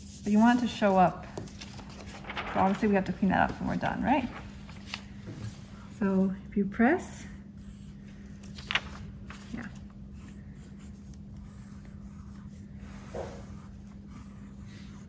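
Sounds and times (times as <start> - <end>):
pencil scratching on paper: 0.0 - 1.2, 10.1 - 15.0
steady low hum: 0.0 - 15.0.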